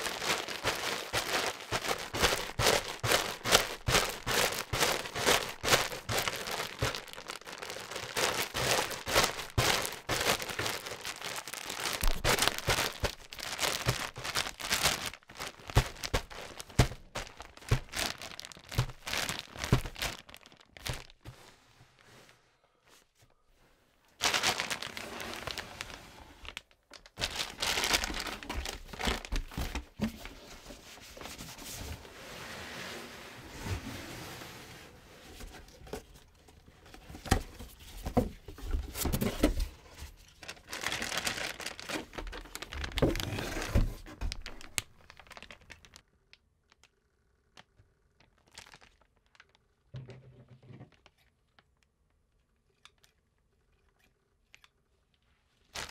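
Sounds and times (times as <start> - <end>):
plastic bag crinkling: 0.0 - 21.3, 24.1 - 30.4, 35.8 - 46.0, 47.6 - 49.6.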